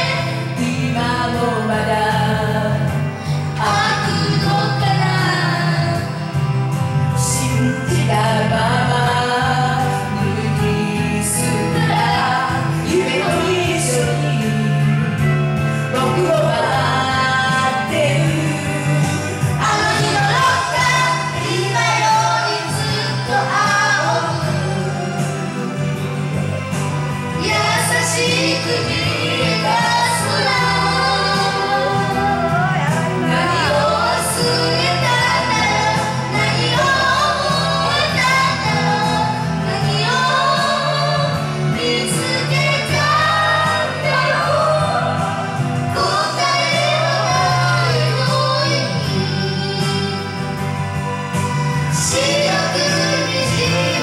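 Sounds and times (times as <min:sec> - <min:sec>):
backing track music: 0:00.0 - 0:54.0
boy singing into a microphone: 0:03.6 - 0:06.2, 0:16.0 - 0:25.5, 0:27.4 - 0:50.6, 0:51.9 - 0:54.0.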